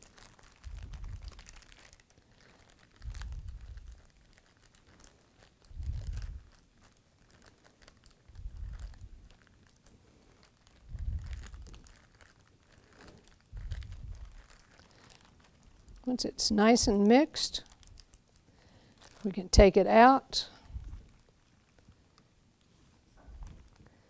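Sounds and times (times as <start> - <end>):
plastic bag crinkling: 0.0 - 24.0
dull low thumps: 3.0 - 3.9, 13.6 - 14.5.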